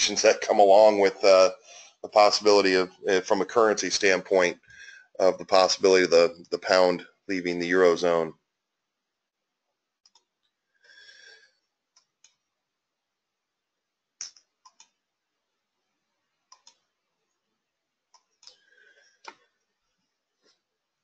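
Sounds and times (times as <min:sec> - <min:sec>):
computer mouse clicks: 0:10.0 - 0:10.5, 0:11.9 - 0:12.4, 0:14.2 - 0:15.0, 0:16.5 - 0:16.9, 0:18.1 - 0:19.5.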